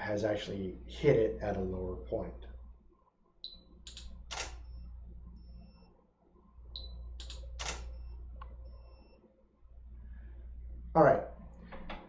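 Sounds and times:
camera clicks: 0:03.9 - 0:04.7, 0:07.2 - 0:08.0
high electronic beep: 0:08.0 - 0:09.2.

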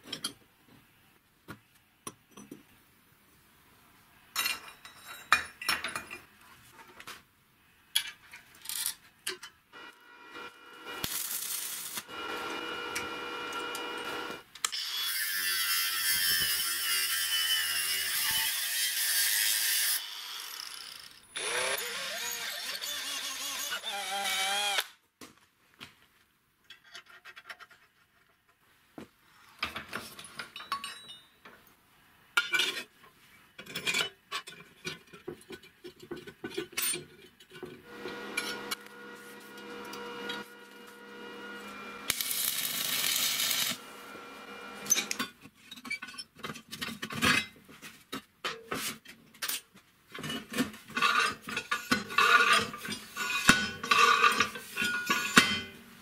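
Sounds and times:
steady hum: 0:37.9 - 0:45.0
steel parts clanking: 0:44.8 - 0:46.3, 0:50.3 - 0:55.8.

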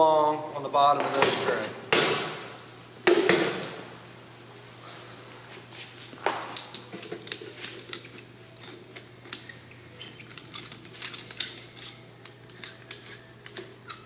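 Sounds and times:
hose couplings clinking in metal tray: 0:06.4 - 0:14.0.

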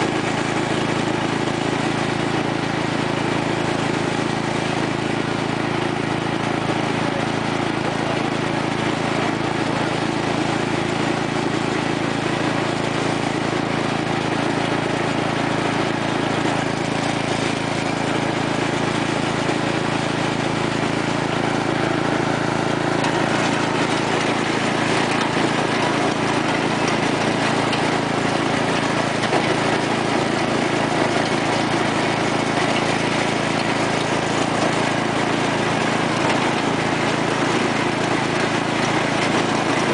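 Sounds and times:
lawn tractor engine running: 0:00.0 - 0:39.9.

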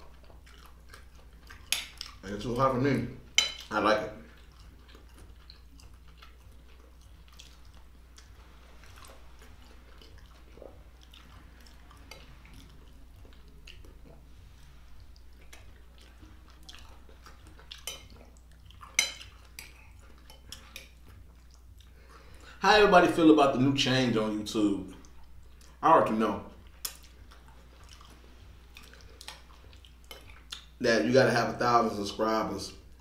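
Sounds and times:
fork clinking on glass bowl: 0:03.4 - 0:03.7.

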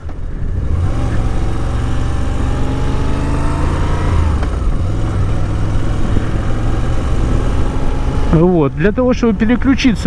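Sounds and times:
wind noise: 0:00.0 - 0:02.4, 0:03.8 - 0:10.0
motorcycle engine revving: 0:00.5 - 0:08.6.

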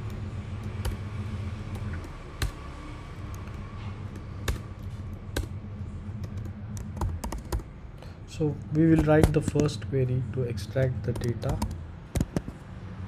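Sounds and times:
steady low hum: 0:00.0 - 0:13.0
computer keyboard keystrokes: 0:03.3 - 0:05.6, 0:06.2 - 0:07.7, 0:08.9 - 0:09.8, 0:10.8 - 0:12.5.

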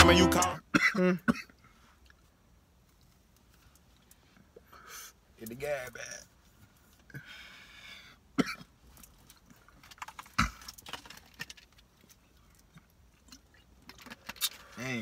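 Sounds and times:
person coughing: 0:00.7 - 0:01.5, 0:08.4 - 0:08.7.

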